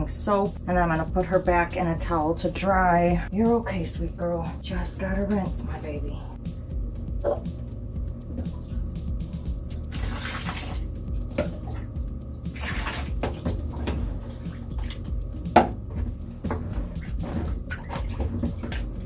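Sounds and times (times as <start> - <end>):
water pouring splashing: 9.9 - 15.2, 16.7 - 19.0.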